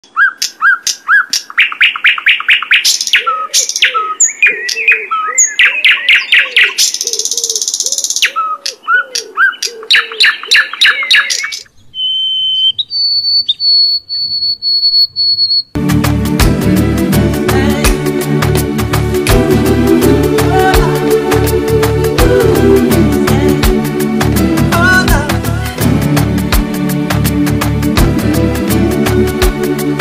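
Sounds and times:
songbird fast trilling song: 0.0s - 15.8s
sparrow whistling song: 0.1s - 15.8s.

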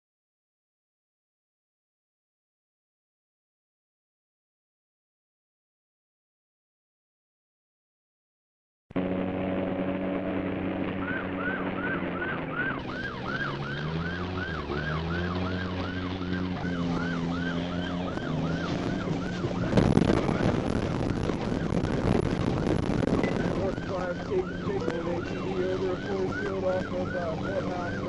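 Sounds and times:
car engine revving: 9.0s - 28.0s
car rumbling over rough ground: 9.0s - 28.0s
police siren yelping: 10.8s - 28.0s.

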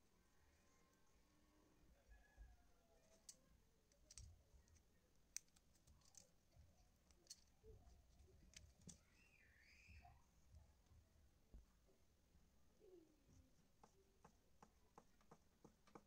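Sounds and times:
small clicks from cable stripping: 3.2s - 4.3s, 5.3s - 6.3s.

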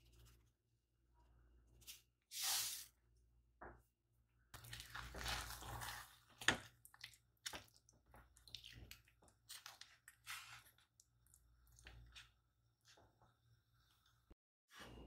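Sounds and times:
spatula squelching mashed potatoes: 4.5s - 14.3s.

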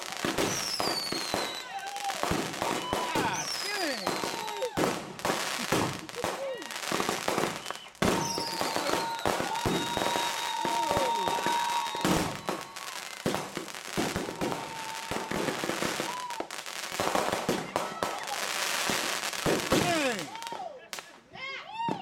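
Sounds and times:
fireworks launches and bangs: 0.0s - 21.2s.

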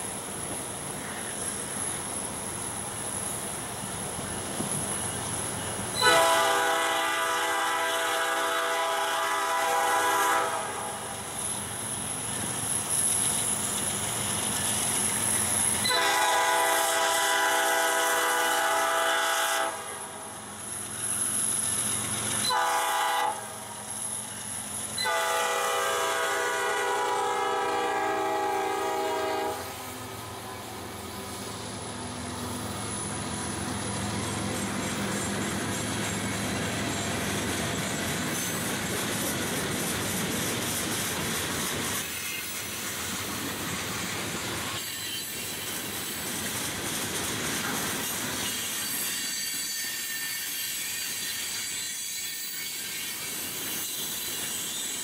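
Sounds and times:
diesel locomotives passing: 0.0s - 55.0s
train air horn blasts: 6.0s - 11.1s, 15.8s - 20.3s, 22.4s - 23.8s, 25.0s - 29.9s.

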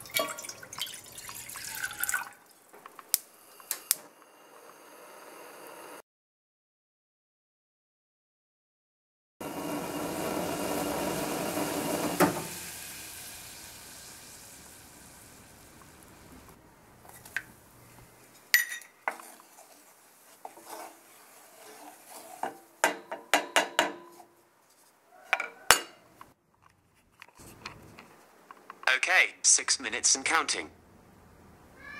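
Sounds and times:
water boiling in saucepan: 0.0s - 3.3s, 9.4s - 17.9s, 19.0s - 23.0s
metal spoon clinking on pan: 18.5s - 19.0s.

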